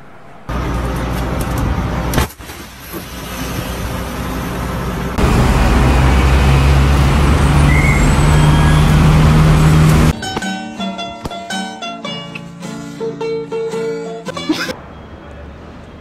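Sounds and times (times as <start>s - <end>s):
low engine hum: 0.0s - 2.2s, 2.8s - 10.1s
road noise on wet road: 0.0s - 10.2s.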